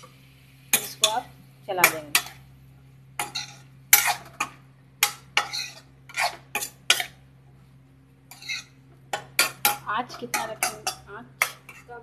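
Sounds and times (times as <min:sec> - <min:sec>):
metal spatula scraping metal pan: 0:03.2 - 0:07.2, 0:08.3 - 0:12.0.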